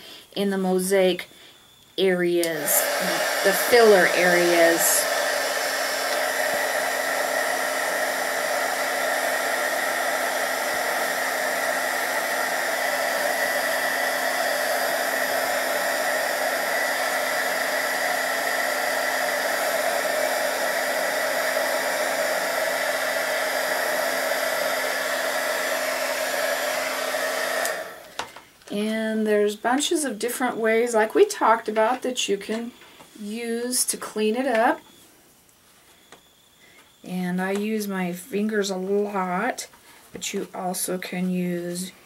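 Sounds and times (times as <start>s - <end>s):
heat gun blowing air: 2.4s - 28.3s.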